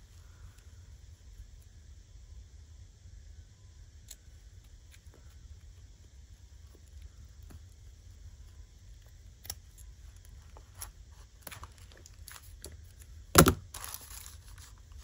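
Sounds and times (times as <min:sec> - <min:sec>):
rustling: 0:09.8 - 0:15.0.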